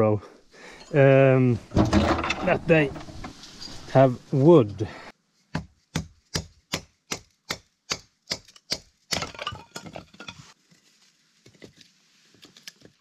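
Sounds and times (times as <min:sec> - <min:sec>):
wood splitting and clattering: 0:01.6 - 0:03.3, 0:08.3 - 0:10.5
wood striking blade: 0:05.5 - 0:09.3.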